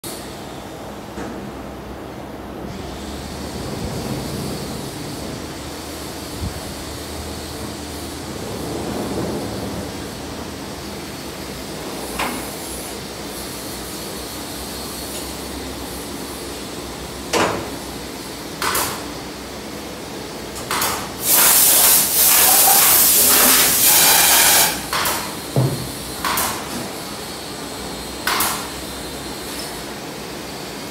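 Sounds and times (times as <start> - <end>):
machine shop background noise: 0.0 - 30.9
hiss and clatter bursts: 2.8 - 19.4, 20.0 - 30.9
loud hiss: 20.7 - 29.1.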